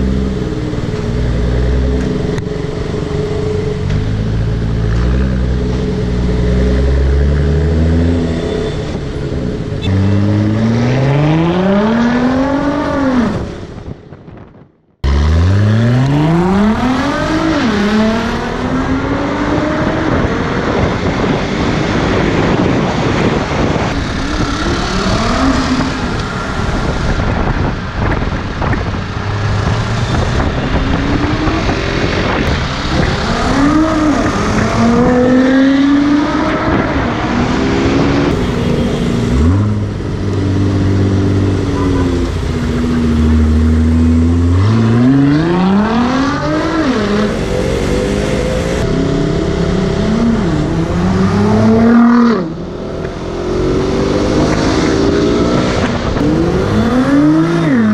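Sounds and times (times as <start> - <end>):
traffic and wind noise: 0.0 - 57.9
car engine accelerating hard: 15.0 - 57.9.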